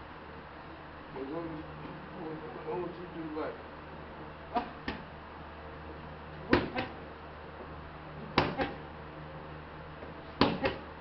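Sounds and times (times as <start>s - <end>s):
boxing glove punches on pads: 6.5s - 7.0s, 8.3s - 8.8s, 10.4s - 10.9s.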